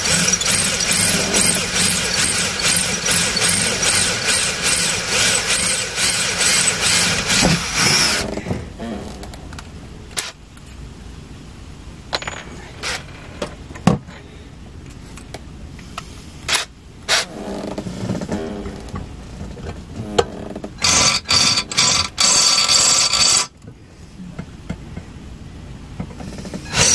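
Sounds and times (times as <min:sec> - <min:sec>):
cordless drill boring into metal: 0:00.0 - 0:08.3, 0:20.8 - 0:23.5, 0:26.6 - 0:26.9.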